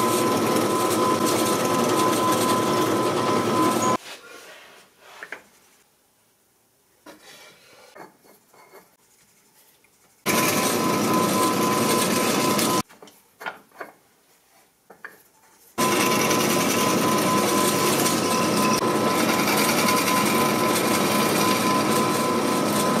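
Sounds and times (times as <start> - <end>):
drill press drilling into wood: 0.0 - 4.0, 10.3 - 12.8, 15.8 - 23.0.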